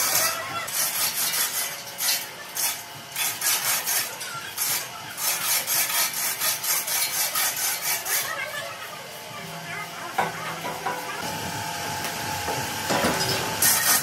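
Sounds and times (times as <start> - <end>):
metal rasping strokes: 0.0 - 8.6, 13.1 - 14.0.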